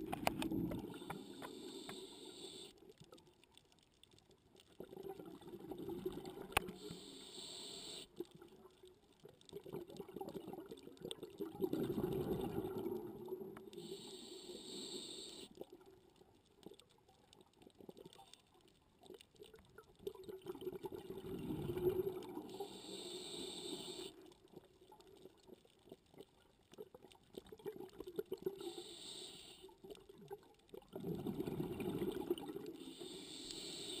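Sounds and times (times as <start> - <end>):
regulator hissing inhales: 1.0 - 2.8, 6.8 - 8.1, 13.7 - 15.6, 22.5 - 24.1, 28.6 - 29.7, 32.8 - 34.0
bubbling exhales: 9.6 - 14.0, 20.3 - 24.2, 30.9 - 34.0.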